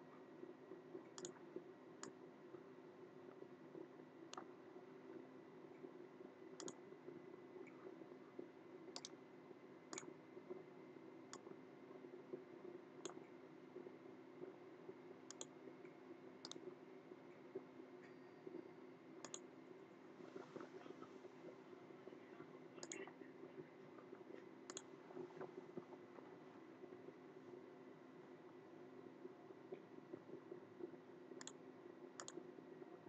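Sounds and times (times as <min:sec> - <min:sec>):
low steady hum: 0:00.0 - 0:33.0
computer mouse clicking: 0:01.1 - 0:01.4, 0:06.6 - 0:06.8, 0:08.9 - 0:09.2, 0:09.9 - 0:10.1, 0:15.3 - 0:15.5, 0:16.4 - 0:16.7, 0:19.2 - 0:19.4, 0:22.8 - 0:23.1, 0:24.7 - 0:25.4, 0:31.4 - 0:31.6, 0:32.2 - 0:32.4.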